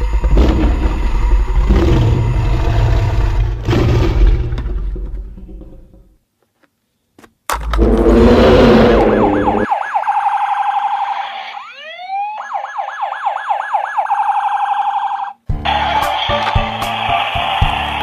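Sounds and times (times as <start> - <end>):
rising electronic chirps: 7.8 - 12.0
yelping electronic siren: 7.8 - 15.4
toy truck engine noise: 15.7 - 18.0.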